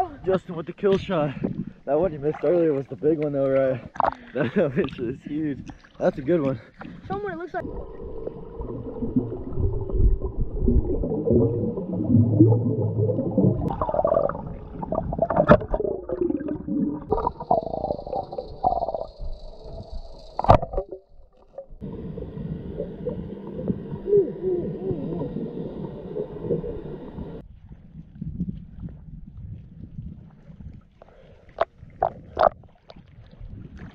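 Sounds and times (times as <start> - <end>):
underwater gurgling bubbles: 6.7 - 27.4.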